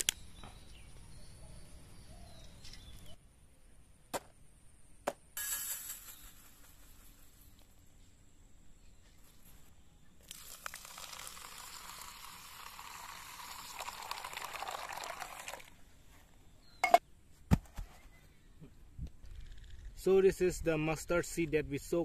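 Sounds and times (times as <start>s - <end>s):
water pouring into steel bowl: 10.3s - 15.7s.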